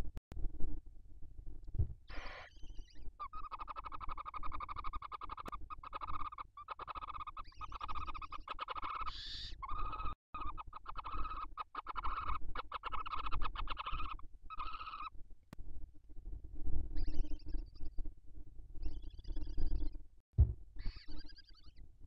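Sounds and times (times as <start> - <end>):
higher-pitched owl call: 2.1 - 15.1
barn owls rasping calls: 2.1 - 15.2.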